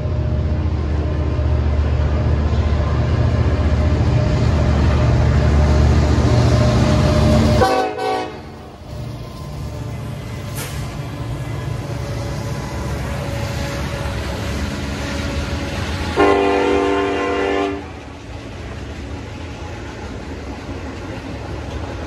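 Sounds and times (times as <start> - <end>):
freight train rumbling past: 0.0 - 22.0
locomotive horn blast: 7.5 - 8.6, 16.1 - 18.0.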